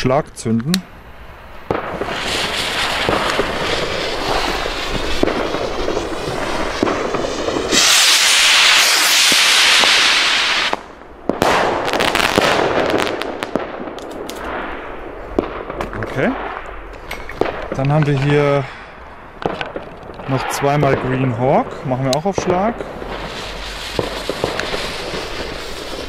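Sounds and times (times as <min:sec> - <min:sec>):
rockets lifting off with rushing hiss: 0:00.8 - 0:26.0
fireworks popping and crackling: 0:01.6 - 0:14.8, 0:15.4 - 0:26.0
rocket fuses sputtering and hissing: 0:01.7 - 0:10.8, 0:23.0 - 0:26.0.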